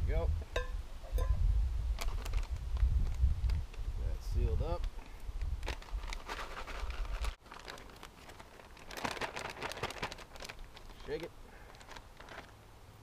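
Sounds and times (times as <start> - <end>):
plastic bag crinkling: 5.6 - 12.6.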